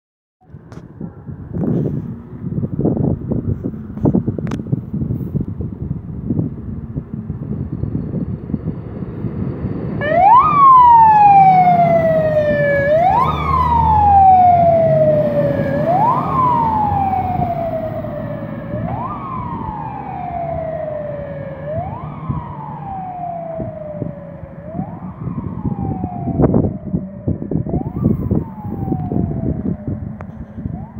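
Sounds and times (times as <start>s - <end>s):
truck engine rumble: 0.4s - 30.9s
fire engine siren wailing: 6.3s - 30.9s.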